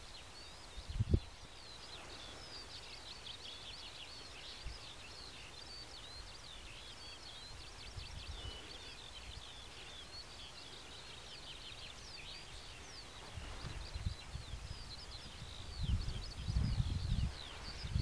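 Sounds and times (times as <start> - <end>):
songbirds singing: 0.0 - 18.0
wind buffeting microphone: 0.8 - 1.3, 12.5 - 18.0.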